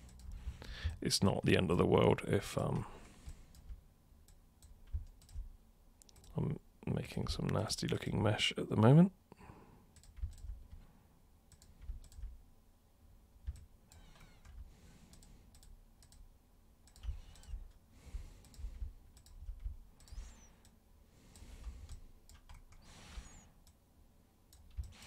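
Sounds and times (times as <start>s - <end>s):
mouse and keyboard clicks: 16.9s - 17.8s.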